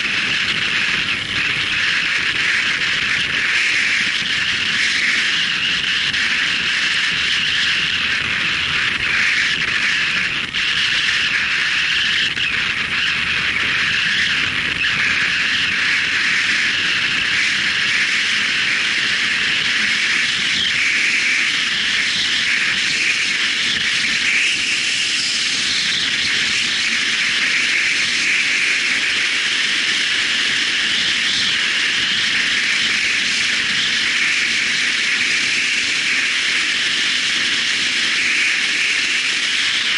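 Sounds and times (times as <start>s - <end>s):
motorcycle riding noise: 0.0s - 39.9s
rushing wind: 0.0s - 39.9s.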